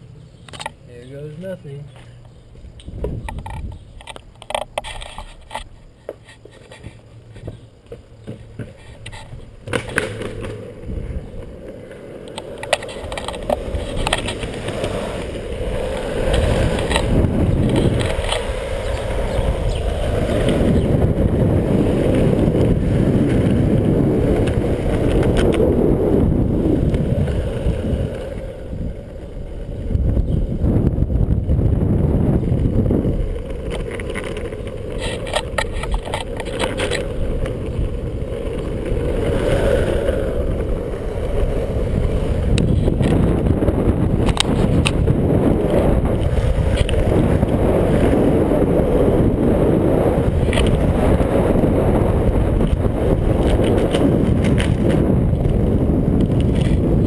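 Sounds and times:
longboard wheels rolling on asphalt: 0.0s - 57.0s
wind buffeting microphone: 2.4s - 6.0s, 8.5s - 57.0s.

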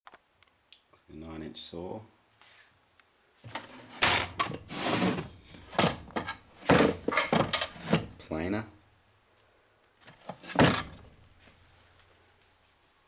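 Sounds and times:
wood-on-wood scrapes and knocks: 3.5s - 8.2s, 10.1s - 11.1s.

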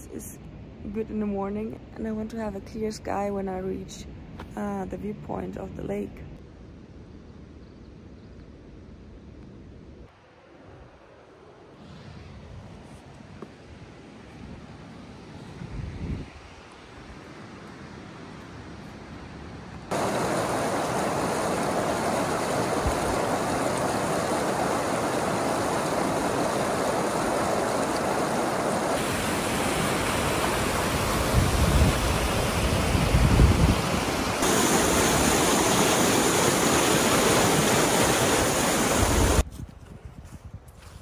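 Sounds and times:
wind buffeting microphone: 15.4s - 17.2s, 19.9s - 41.0s
river rushing over stones: 19.9s - 39.4s.

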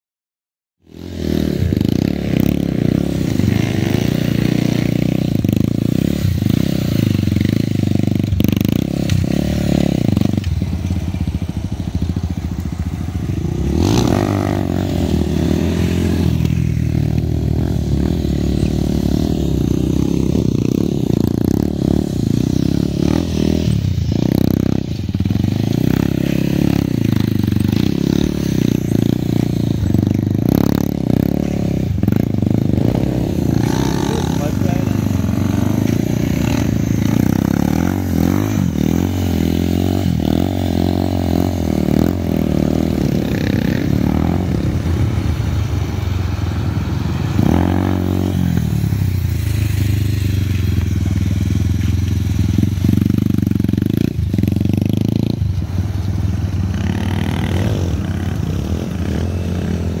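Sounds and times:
motorcycle engine revving: 0.8s - 60.0s.

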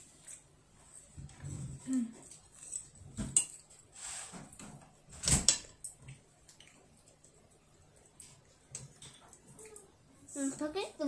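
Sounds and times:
short scrape: 4.0s - 4.4s.

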